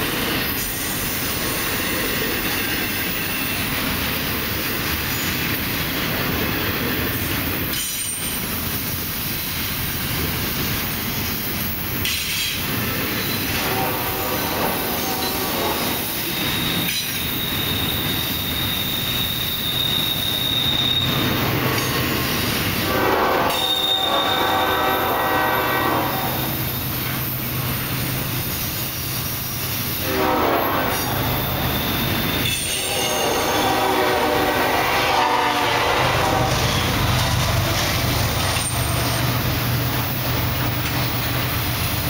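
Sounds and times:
train wheels squealing: 0.0s - 13.6s, 14.7s - 22.8s, 23.4s - 25.2s, 26.2s - 30.2s, 30.8s - 33.8s, 36.5s - 42.0s
freight train wheels rumbling: 0.0s - 42.0s.

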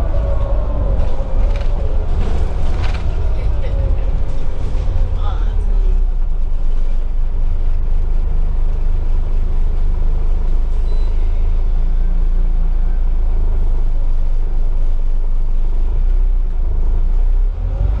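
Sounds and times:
bus diesel engine drone: 0.0s - 18.0s
road rumble: 0.0s - 18.0s.

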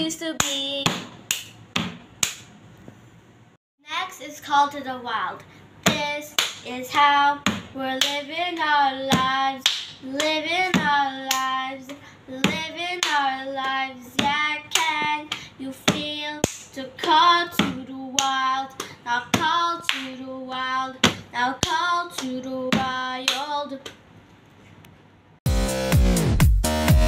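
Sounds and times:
girl singing: 0.0s - 1.1s, 3.8s - 24.0s
hand claps and pats: 0.4s - 2.5s, 5.9s - 6.6s, 7.5s - 11.5s, 12.5s - 16.8s.

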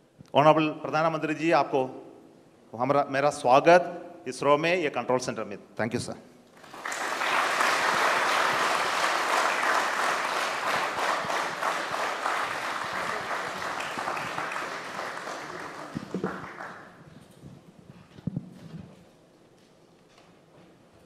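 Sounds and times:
crowd applauding: 6.6s - 17.0s.

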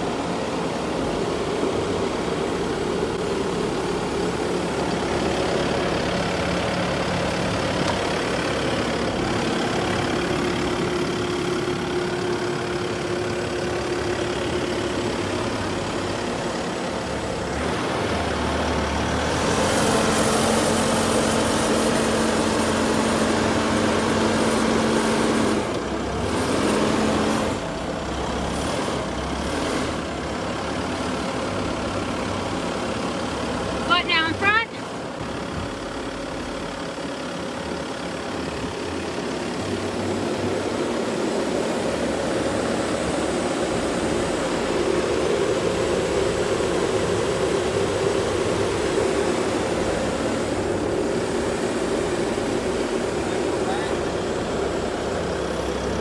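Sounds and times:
diesel engine running: 0.0s - 56.0s
steady hydraulic whine: 38.2s - 56.0s.

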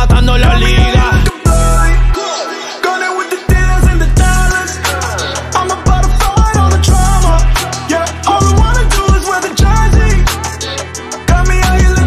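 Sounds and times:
hip hop music with heavy bass: 0.0s - 12.0s.

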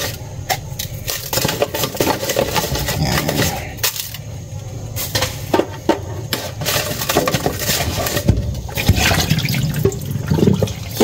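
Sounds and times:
water splashing in a sink: 7.5s - 11.0s.

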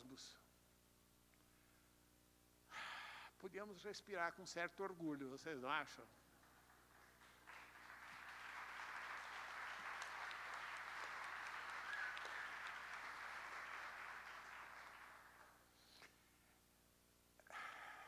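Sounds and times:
audience applauding: 6.4s - 15.6s.

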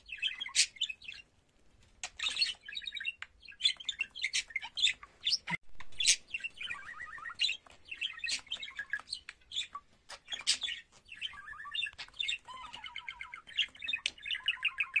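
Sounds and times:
budgerigar warbling: 9.6s - 15.0s.

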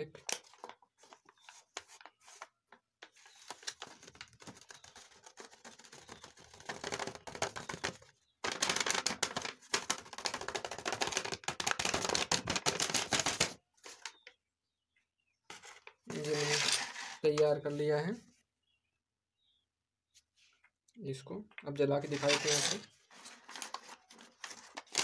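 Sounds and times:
paper crinkling: 0.2s - 14.1s, 22.0s - 25.0s.

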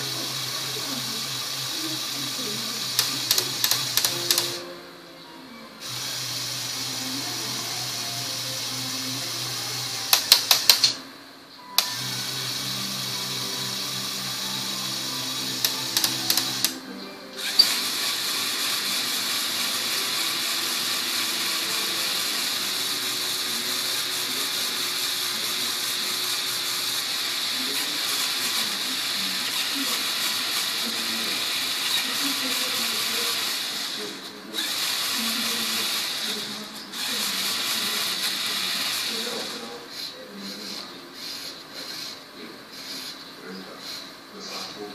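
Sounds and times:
electric motors and gears whirring: 0.0s - 44.9s
sharp clicking: 3.0s - 4.6s, 10.1s - 11.0s.

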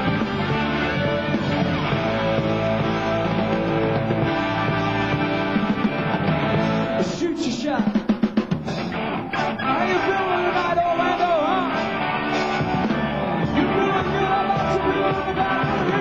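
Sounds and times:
drum fill: 0.0s - 9.5s
rock band playing: 0.0s - 16.0s.

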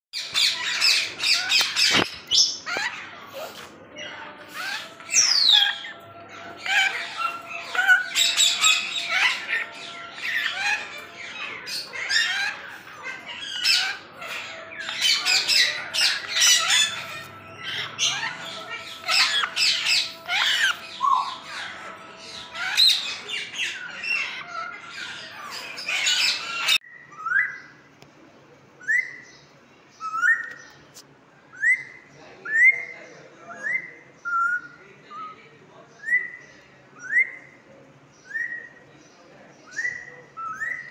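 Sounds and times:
parrots squawking and chirping: 0.2s - 27.8s, 39.6s - 40.9s.

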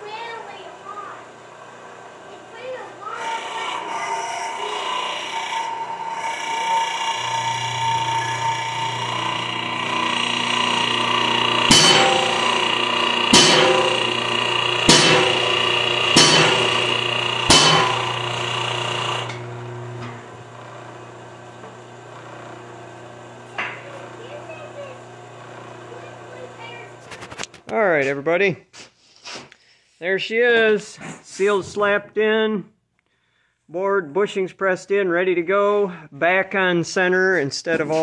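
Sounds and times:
hydraulic press hum: 1.2s - 27.1s
ringing metal bangs: 8.0s - 18.4s.

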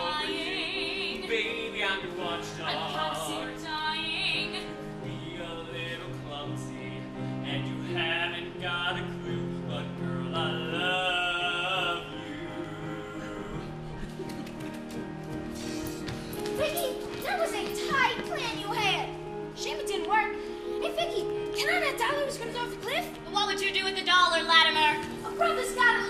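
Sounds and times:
man singing with vibrato: 0.0s - 3.6s, 5.0s - 13.8s.

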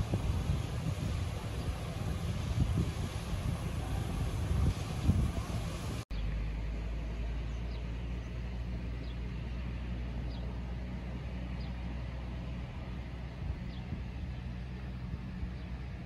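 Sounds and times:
outdoor rumble and hiss: 0.0s - 16.0s.

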